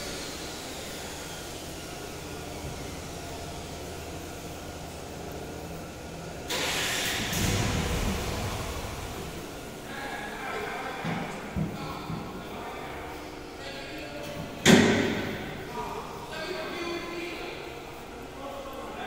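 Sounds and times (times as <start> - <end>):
factory machinery hum: 0.0 - 19.0
loud hiss: 6.5 - 10.1
heavy low rumble: 6.6 - 9.9.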